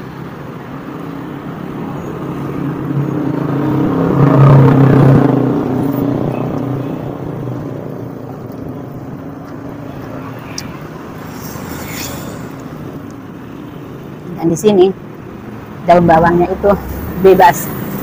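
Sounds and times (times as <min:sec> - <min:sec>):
vehicle engine driving past: 0:10.2 - 0:13.1, 0:16.1 - 0:18.0.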